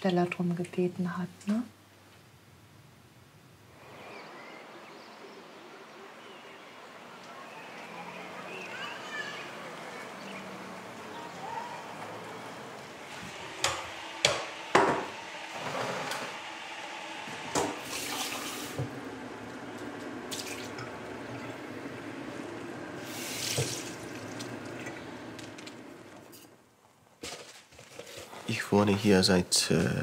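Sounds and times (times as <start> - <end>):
dishes knocking: 13.6 - 15.2
tap water running into sink: 17.5 - 19.0, 20.0 - 21.6, 23.0 - 25.7.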